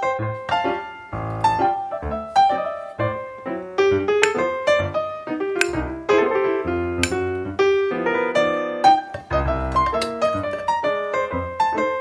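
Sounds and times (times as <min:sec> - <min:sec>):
background piano music: 0:00.0 - 0:12.0.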